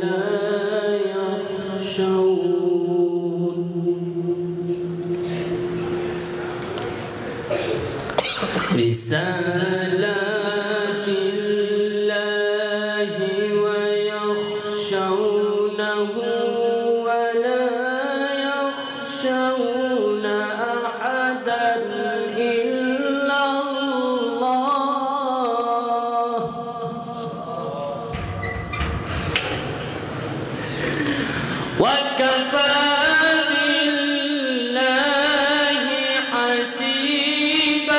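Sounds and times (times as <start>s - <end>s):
man chanting melodically: 8.5s - 28.4s, 31.0s - 37.9s.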